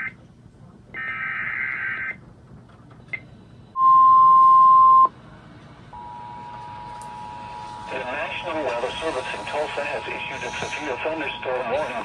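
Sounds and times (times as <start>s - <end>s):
loud steady tone: 3.1s - 5.2s, 5.9s - 12.0s.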